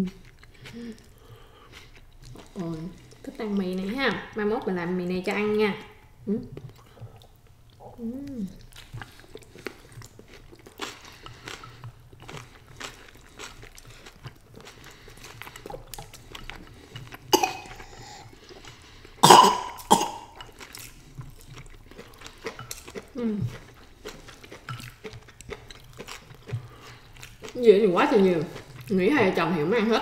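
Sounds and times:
person coughing: 0:17.3 - 0:18.2, 0:19.2 - 0:20.4.

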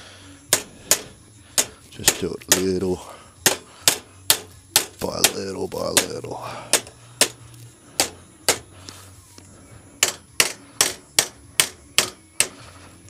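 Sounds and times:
hammer striking sheet metal: 0:00.5 - 0:02.7, 0:10.0 - 0:12.5.

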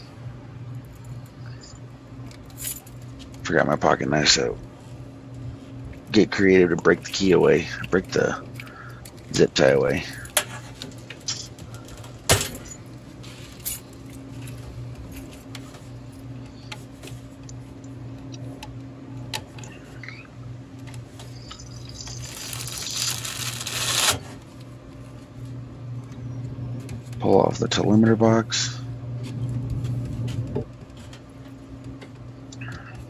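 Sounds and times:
steady low hum: 0:00.0 - 0:33.0
plastic box scraping rustle: 0:22.2 - 0:24.4.

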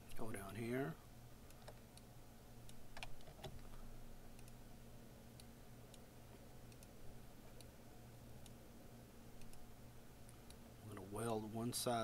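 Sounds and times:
faint low hum: 0:00.0 - 0:12.0
computer mouse clicking: 0:01.5 - 0:04.6, 0:06.7 - 0:07.7, 0:09.4 - 0:09.6.

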